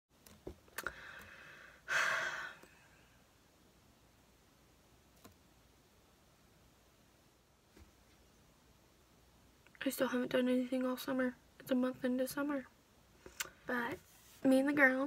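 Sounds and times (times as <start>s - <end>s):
person sighing: 0.8s - 3.0s.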